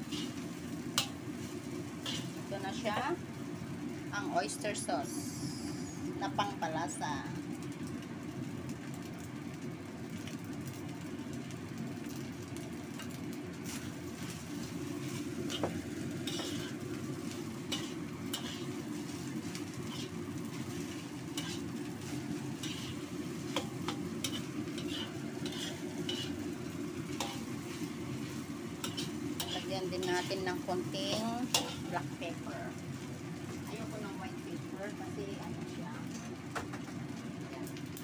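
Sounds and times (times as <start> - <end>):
metal spatula scraping wok: 0.0 - 1.2, 1.9 - 2.8, 16.2 - 26.5, 27.1 - 32.0
rice sizzling: 0.0 - 38.0.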